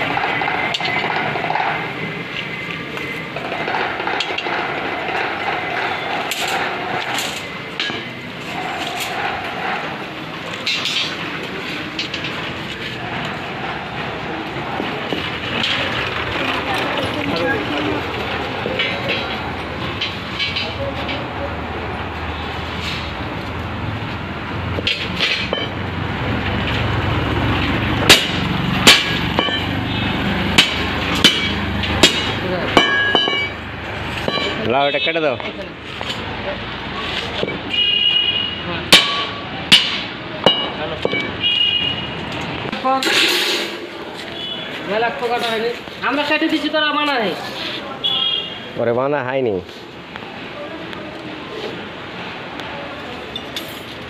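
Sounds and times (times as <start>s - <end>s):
steel rods clinking and scraping: 0.0s - 2.5s, 3.4s - 13.4s, 18.6s - 21.4s, 24.8s - 25.8s, 28.0s - 29.8s, 30.6s - 34.8s, 42.7s - 44.4s, 53.3s - 54.0s.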